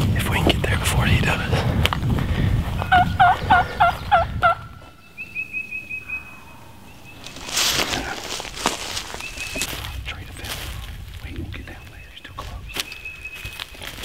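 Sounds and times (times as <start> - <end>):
wild turkey gobbling: 2.8 - 8.4
faint songbird notes: 2.8 - 14.0.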